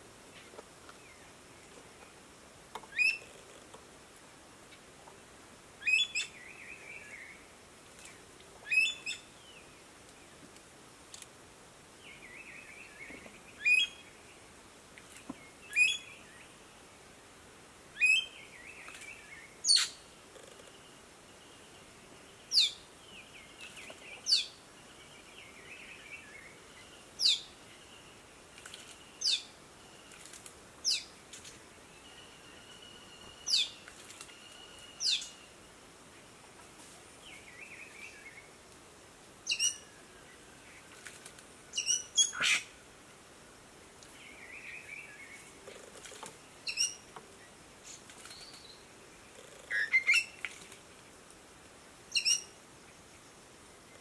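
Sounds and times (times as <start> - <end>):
sharp high bird calls: 41.8 - 42.7, 49.7 - 50.4, 52.1 - 52.5
soft bird twittering: 46.6 - 47.0, 52.1 - 52.5.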